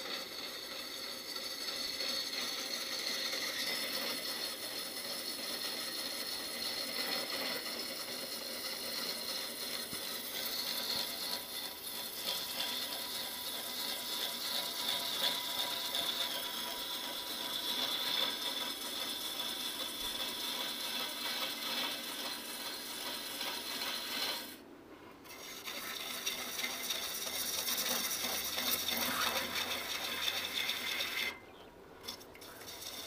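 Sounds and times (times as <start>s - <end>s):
gouge cutting wood on a lathe: 0.0s - 24.6s, 25.2s - 31.4s, 32.0s - 33.0s.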